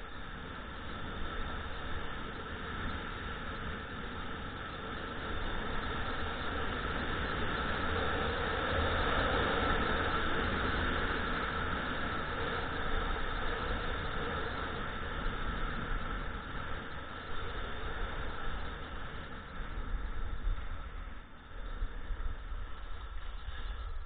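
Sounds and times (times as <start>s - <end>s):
wind rushing over microphone: 0.0s - 24.0s
skis hissing on snow: 4.9s - 24.0s.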